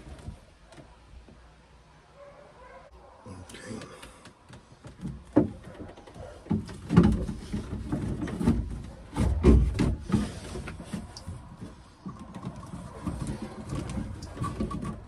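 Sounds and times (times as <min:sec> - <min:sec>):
hose knocking and scraping: 0:04.5 - 0:15.0.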